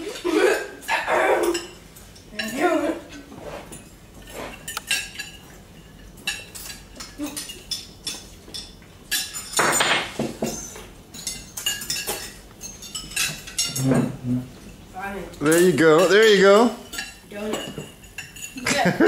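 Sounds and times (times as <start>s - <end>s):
forks clinking on plates: 0.0s - 19.0s.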